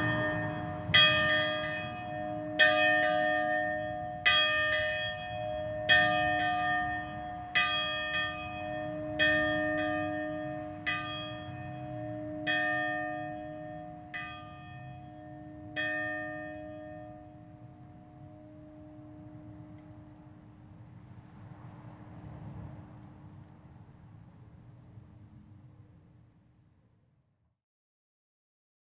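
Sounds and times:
church bells ringing: 0.0 - 20.8.

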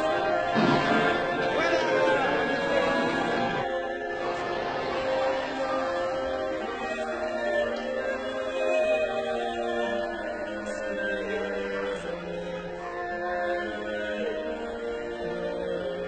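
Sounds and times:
slow solemn singing: 0.0 - 16.0.

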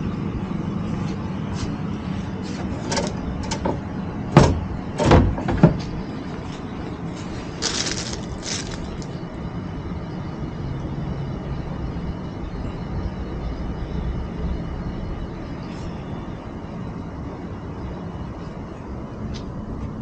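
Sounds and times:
net frames knocking: 3.6 - 6.0
plastic crackling: 7.2 - 9.2
plastic rustling: 7.2 - 9.2.

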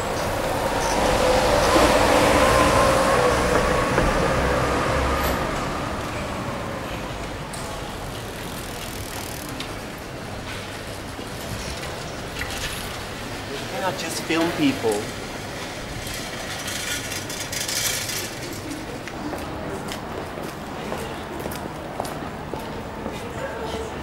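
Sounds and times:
vehicle passing by: 0.0 - 9.9.

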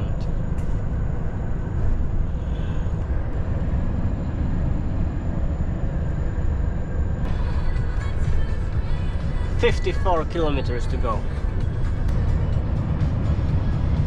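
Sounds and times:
road rumble: 0.0 - 14.0
truck engine drone: 0.0 - 14.0.

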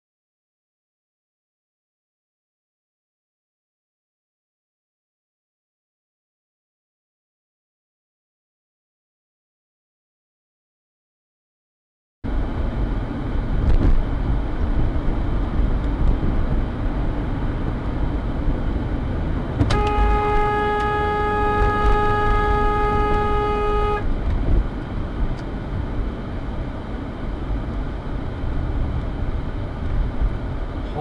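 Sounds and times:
car driving rumble inside cabin: 12.3 - 31.0
car horn long blast: 19.6 - 24.1.

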